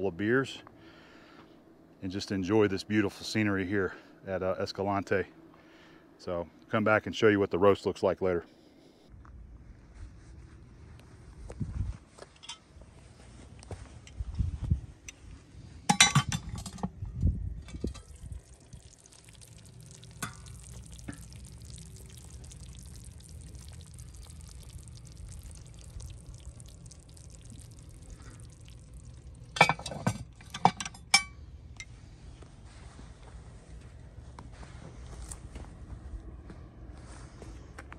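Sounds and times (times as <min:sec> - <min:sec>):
cast iron lid clinking: 0:15.9 - 0:16.9, 0:29.6 - 0:31.4
faint steady hiss: 0:17.6 - 0:33.4.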